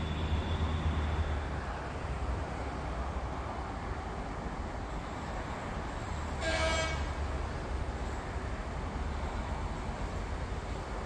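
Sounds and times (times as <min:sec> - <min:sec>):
locomotive horn blast: 0:06.4 - 0:07.1.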